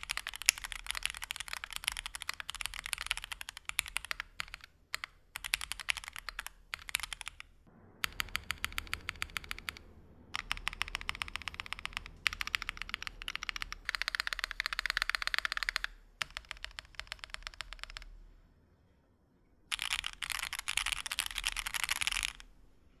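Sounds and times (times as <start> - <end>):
fast typing on mechanical keyboard: 0.0 - 18.1, 19.7 - 22.4.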